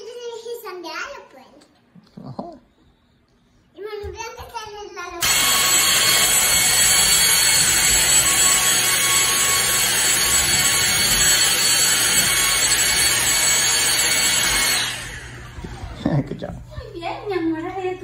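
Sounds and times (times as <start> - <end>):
stick vacuum cleaner running: 5.2 - 18.0.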